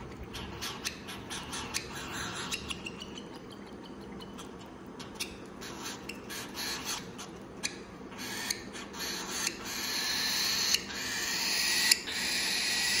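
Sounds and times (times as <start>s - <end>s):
bird chick begging squeaks: 0.4s - 3.5s.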